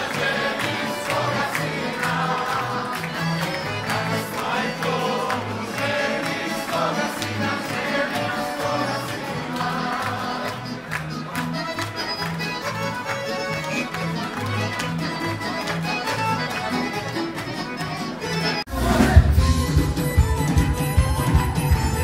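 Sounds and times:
group singing along: 0.0 - 10.7, 18.7 - 19.6
people clapping in time: 0.0 - 18.7
accordion: 0.0 - 22.0
acoustic guitars: 0.0 - 22.0.

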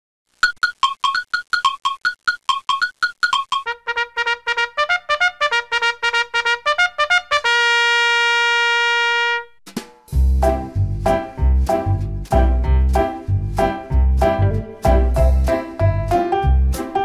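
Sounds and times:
bouncy tune with heavy bass beat: 9.6 - 17.0.

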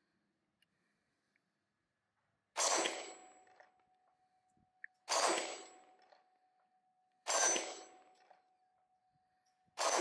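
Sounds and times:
pistol shots: 9.8 - 10.0.

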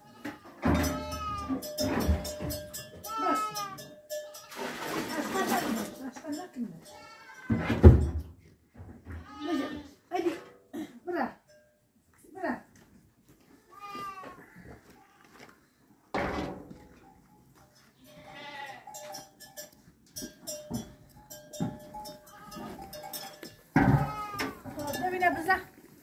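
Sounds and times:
livestock bleating: 0.0 - 1.7, 3.0 - 4.8, 6.8 - 7.7, 9.2 - 10.0, 13.6 - 15.4, 18.0 - 19.1, 22.2 - 23.2, 23.8 - 25.0.

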